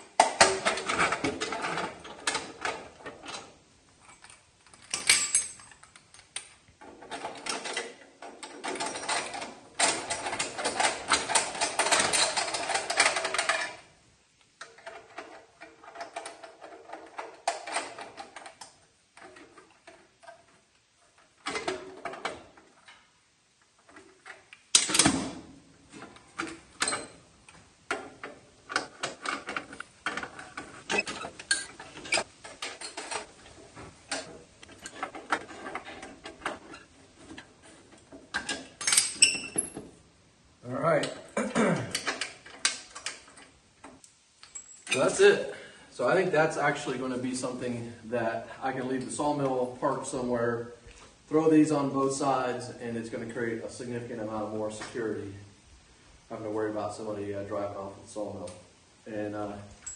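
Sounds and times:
metal clicks and knocks: 23.8 - 40.0.

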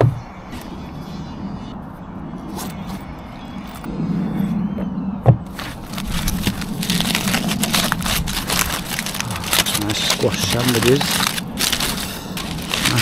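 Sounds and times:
aluminium foil crinkling: 5.5 - 13.0.

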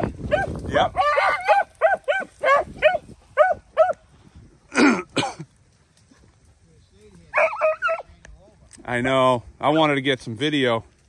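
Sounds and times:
dogs yelping: 0.3 - 4.0, 7.3 - 8.1
harsh dog barks: 0.3 - 4.0, 7.3 - 8.1.

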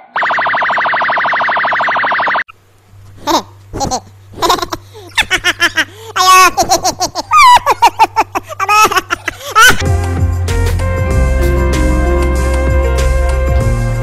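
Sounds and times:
high-pitched laughter: 3.2 - 9.8
music with steady bass: 9.8 - 14.0.

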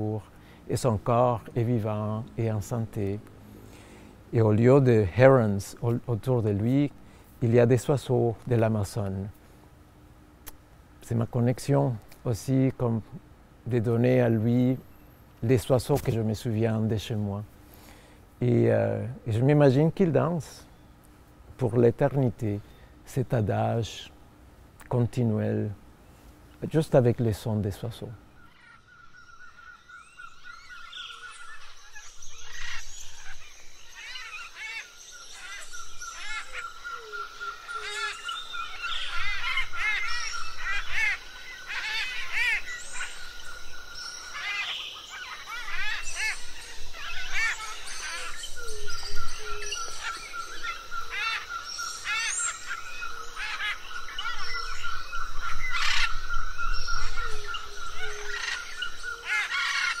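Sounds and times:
birds chirping and whistling: 28.2 - 60.0.

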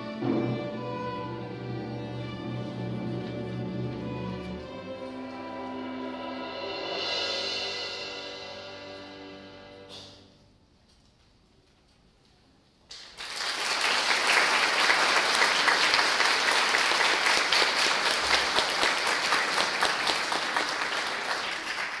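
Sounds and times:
audience applauding: 12.9 - 22.0.

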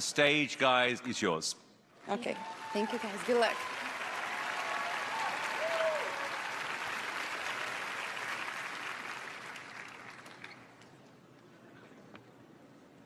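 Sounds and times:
audience applauding: 2.1 - 10.8.

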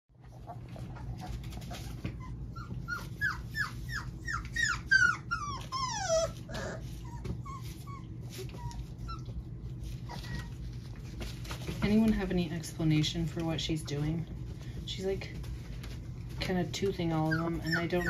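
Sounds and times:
puppies whimpering: 0.3 - 11.0, 17.1 - 18.0.

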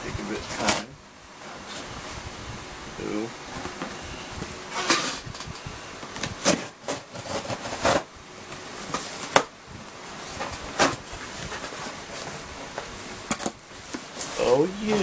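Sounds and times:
packaging rustling and crinkling: 6.2 - 15.0.

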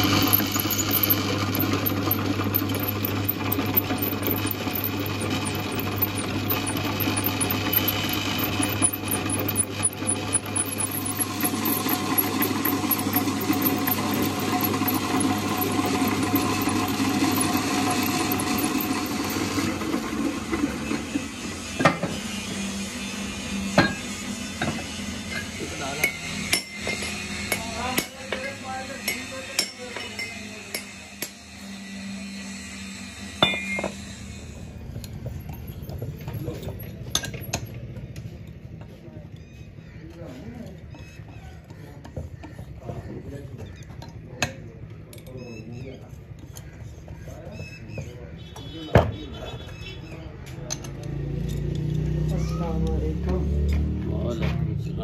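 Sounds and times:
drill press drilling steel: 0.0 - 37.7.

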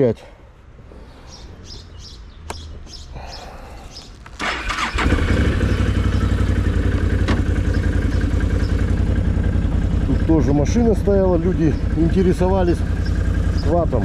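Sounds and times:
quad bike engine starting and idling: 4.3 - 14.0.

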